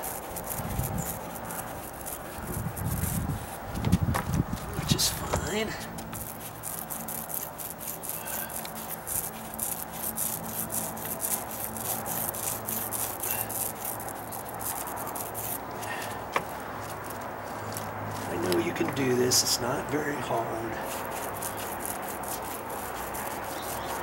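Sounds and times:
paint roller crackling: 0:00.0 - 0:24.0
steady low hum: 0:00.0 - 0:24.0.

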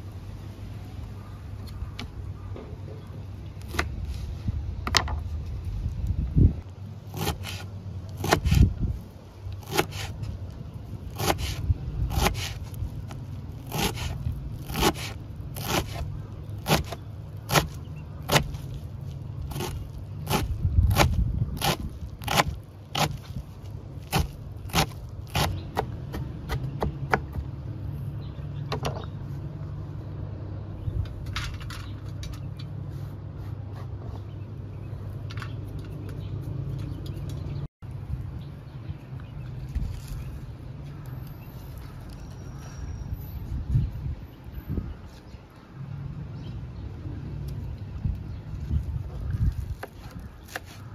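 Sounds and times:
knife chopping on wooden board: 0:13.7 - 0:18.6.

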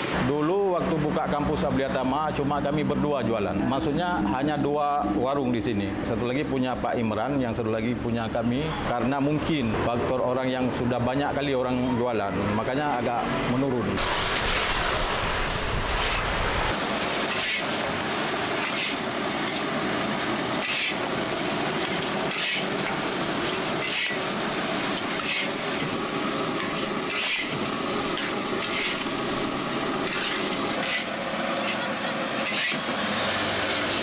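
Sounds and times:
rice sizzling in a wok: 0:14.0 - 0:34.0
metal spatula scraping a wok: 0:15.9 - 0:16.3, 0:17.2 - 0:17.9, 0:18.6 - 0:19.7, 0:20.6 - 0:21.1, 0:21.8 - 0:26.0, 0:26.6 - 0:33.6.

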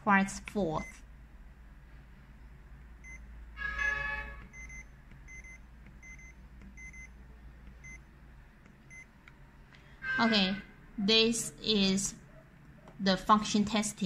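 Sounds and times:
short electronic key beeps: 0:03.8 - 0:07.1.

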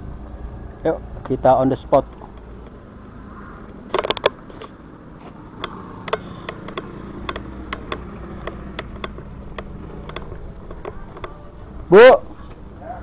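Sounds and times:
scooter engine idling: 0:00.0 - 0:13.0
sharp irregular ticks: 0:01.2 - 0:12.8.

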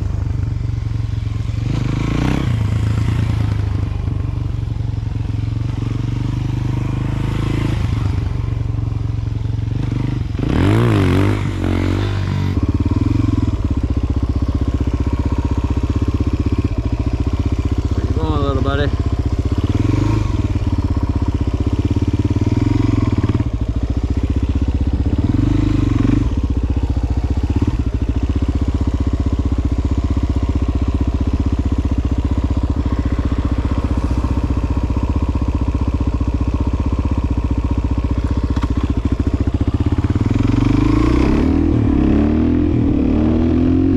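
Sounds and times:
motorcycle engine running: 0:00.0 - 0:43.9.

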